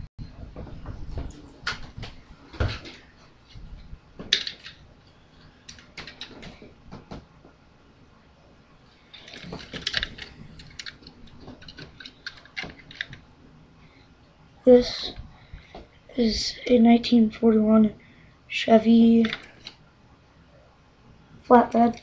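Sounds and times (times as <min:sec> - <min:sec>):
rustling: 0:08.8 - 0:14.1
model car handling clicks and knocks: 0:09.2 - 0:13.2.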